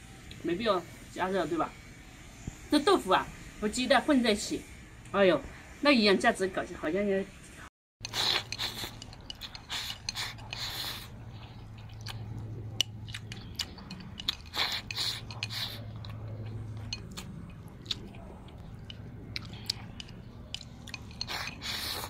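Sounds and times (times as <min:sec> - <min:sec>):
loud slurps: 0:08.0 - 0:18.5, 0:20.5 - 0:22.0
person chewing rice: 0:08.0 - 0:22.0.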